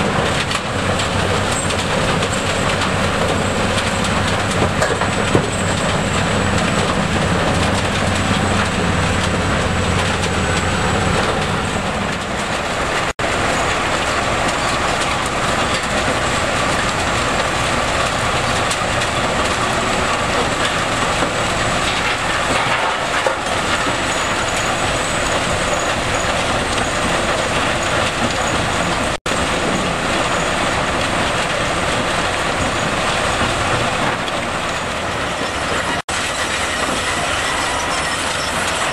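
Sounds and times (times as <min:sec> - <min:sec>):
rock crusher clattering: 0:00.0 - 0:38.9.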